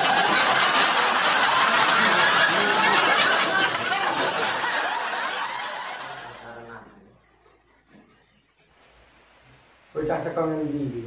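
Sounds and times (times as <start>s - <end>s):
crowd laughing: 0.0s - 8.7s.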